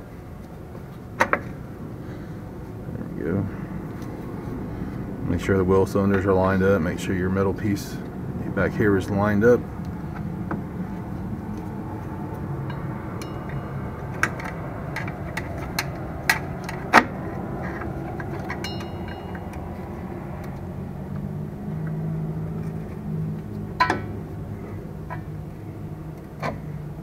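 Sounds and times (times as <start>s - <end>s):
low background noise: 0.0s - 27.0s
metal clicks of brake hardware: 12.6s - 21.2s, 22.6s - 24.2s.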